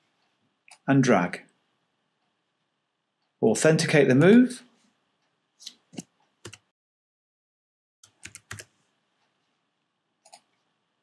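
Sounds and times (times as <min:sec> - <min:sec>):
keyboard keys clicking: 0:08.1 - 0:08.7.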